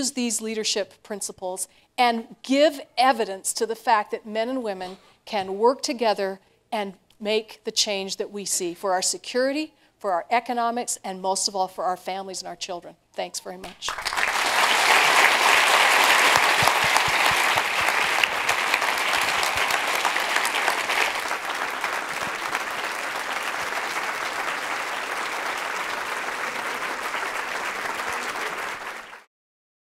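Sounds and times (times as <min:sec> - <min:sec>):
large audience applauding: 0:13.7 - 0:29.3.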